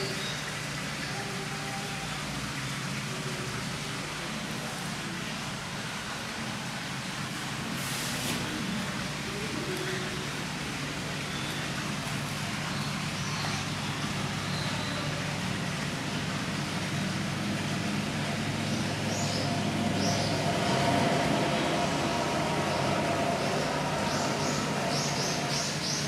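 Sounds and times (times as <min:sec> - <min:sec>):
steady low hum: 0:08.5 - 0:26.0.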